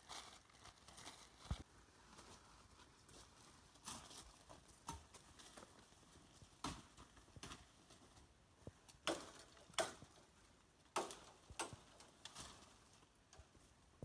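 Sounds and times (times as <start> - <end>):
footsteps crunching on dry leaves: 0.0 - 6.4
leaves and twigs brushing: 0.0 - 13.9.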